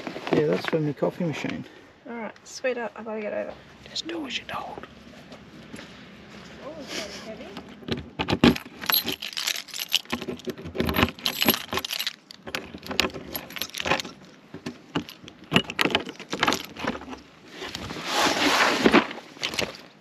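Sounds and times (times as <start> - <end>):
keys jangling on keyring: 8.4 - 14.4, 15.0 - 17.8.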